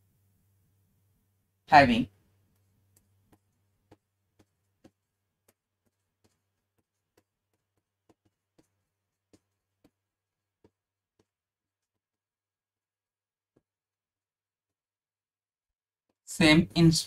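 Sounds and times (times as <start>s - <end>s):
stylus tapping on screen: 2.4s - 12.3s.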